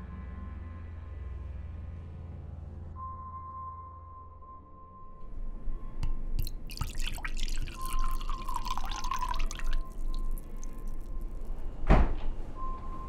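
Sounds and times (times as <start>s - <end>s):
wine pouring into a glass: 6.4s - 11.5s.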